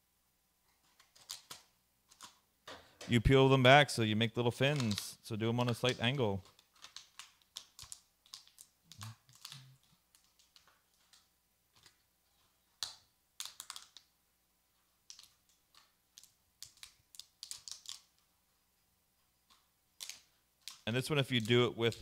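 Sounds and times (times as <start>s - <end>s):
plastic bottle crinkling: 4.6s - 11.2s.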